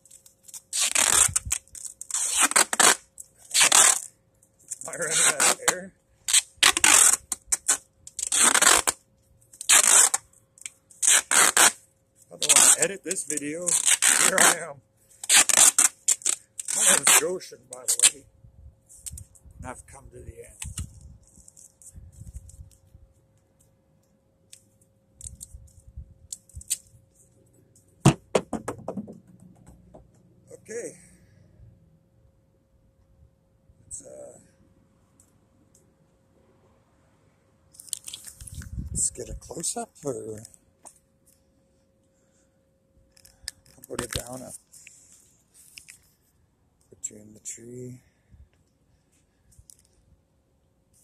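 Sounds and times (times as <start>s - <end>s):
duct tape ripping off roll: 0.0s - 4.1s, 4.7s - 9.0s, 9.6s - 11.8s, 12.4s - 18.2s, 20.6s - 21.8s, 26.3s - 26.9s, 37.8s - 38.8s.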